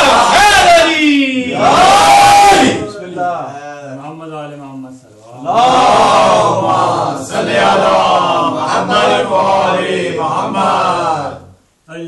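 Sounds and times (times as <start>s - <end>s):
men chanting in unison: 5.4s - 11.6s.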